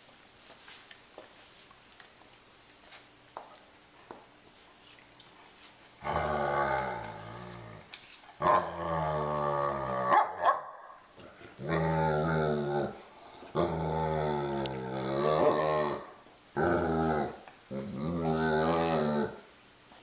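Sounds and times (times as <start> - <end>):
dog growling and grumbling: 6.0 - 10.4, 11.2 - 19.5.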